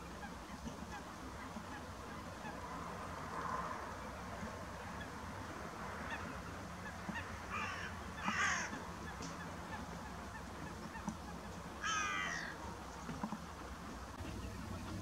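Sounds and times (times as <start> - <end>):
wild birds calling: 0.0 - 15.0
steady low rumble: 14.0 - 15.0.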